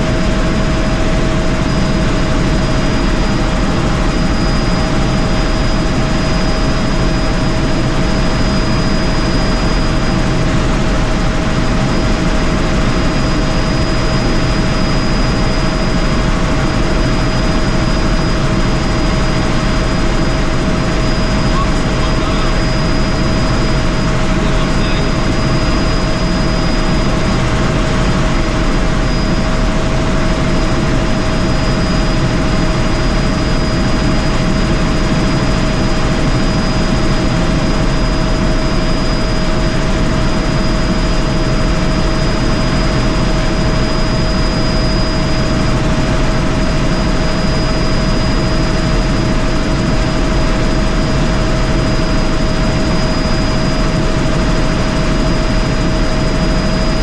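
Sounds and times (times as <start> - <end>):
helicopter rotor and engine noise: 0.0 - 57.0.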